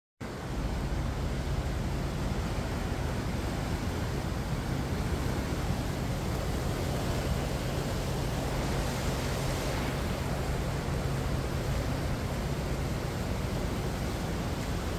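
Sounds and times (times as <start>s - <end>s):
water rushing over rocks: 0.2s - 14.9s.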